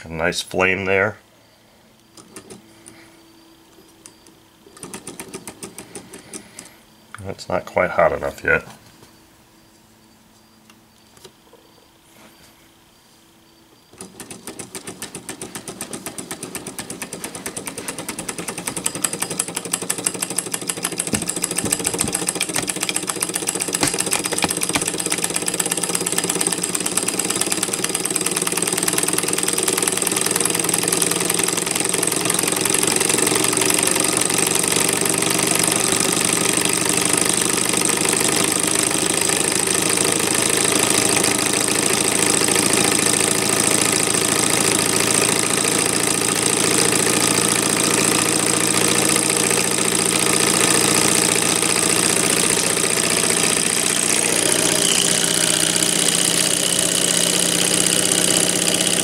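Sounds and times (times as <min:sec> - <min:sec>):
stirling engine ticking and whining: 0:14.0 - 0:59.0.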